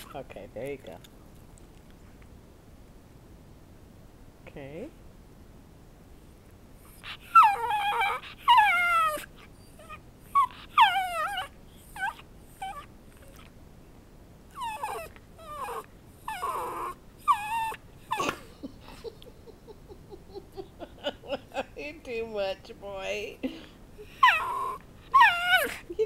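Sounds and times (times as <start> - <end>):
dog whining high cries: 6.9 - 13.5, 14.6 - 18.4, 24.1 - 25.9.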